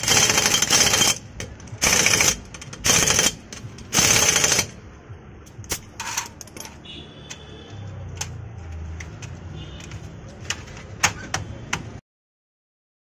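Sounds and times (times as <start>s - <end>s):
pneumatic impact wrench hammering: 0.0s - 4.8s.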